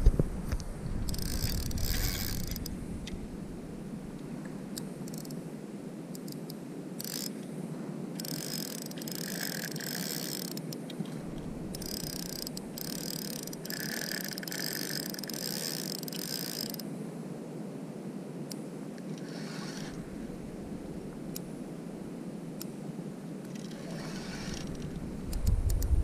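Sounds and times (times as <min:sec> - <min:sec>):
fishing reel drag buzzing: 0:01.1 - 0:02.7, 0:05.0 - 0:05.4, 0:06.2 - 0:07.3, 0:08.2 - 0:10.8, 0:11.7 - 0:16.8, 0:19.2 - 0:20.0, 0:23.5 - 0:25.0.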